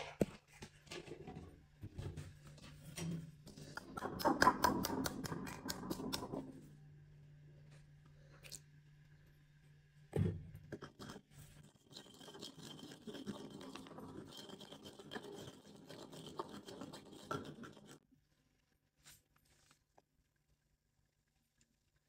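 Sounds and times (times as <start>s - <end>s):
wet scraping and mashing: 3.4s - 6.7s, 10.7s - 18.0s.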